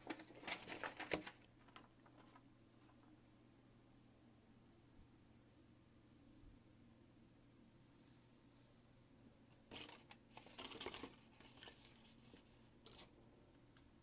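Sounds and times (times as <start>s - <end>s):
small tools clinking and rattling: 9.7s - 13.1s.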